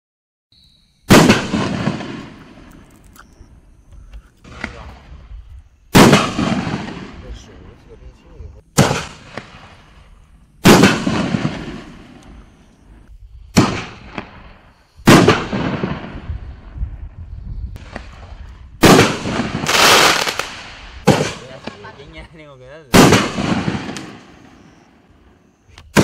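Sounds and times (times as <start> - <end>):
firework shell booms: 1.1 - 2.8, 5.9 - 7.5, 8.7 - 12.4, 13.5 - 16.8, 17.8 - 22.1, 22.9 - 24.6
firework crackling: 1.1 - 3.2, 8.7 - 16.8, 17.8 - 24.6.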